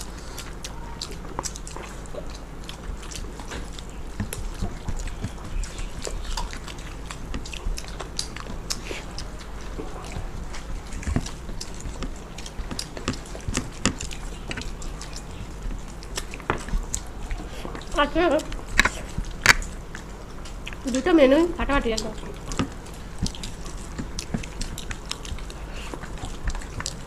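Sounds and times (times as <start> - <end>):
low hum: 0.0 - 27.0
people chewing with wet smacks: 0.0 - 27.0.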